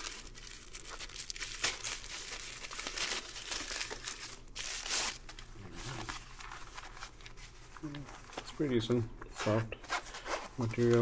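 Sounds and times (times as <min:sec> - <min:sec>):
plastic bag tearing and crinkling: 0:00.0 - 0:06.8.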